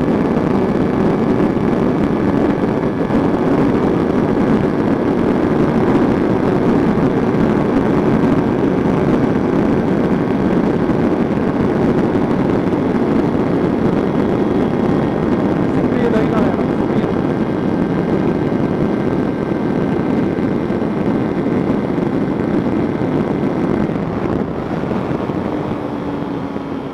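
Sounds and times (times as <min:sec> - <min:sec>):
motorcycle engine at high revs: 0:00.0 - 0:26.9
wind rush on microphone: 0:00.0 - 0:26.9.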